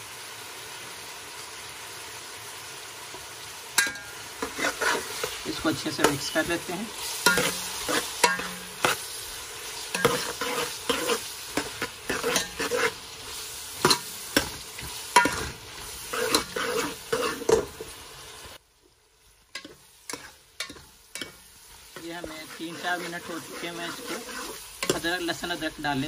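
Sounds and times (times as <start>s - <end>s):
onions sizzling in hot fat: 0.0s - 26.0s
steel spoon scraping metal pot: 3.8s - 9.0s, 9.9s - 13.1s, 13.8s - 17.7s, 19.6s - 21.4s, 22.0s - 25.1s.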